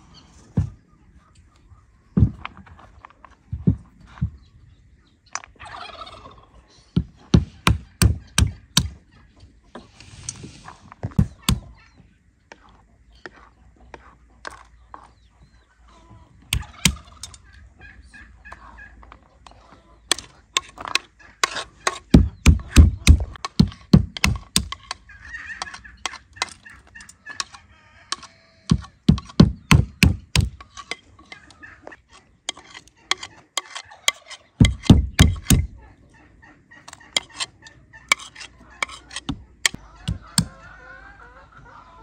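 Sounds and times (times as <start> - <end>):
chickens clucking: 0.0 - 42.0
stone cracking walnuts on wood: 7.0 - 9.0, 11.2 - 11.7, 16.5 - 17.4, 20.1 - 35.8, 36.9 - 37.5, 38.1 - 40.6.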